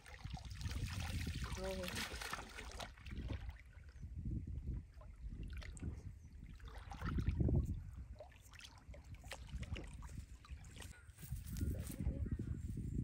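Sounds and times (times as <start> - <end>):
water sloshing and splashing: 0.0 - 4.0, 4.7 - 11.0.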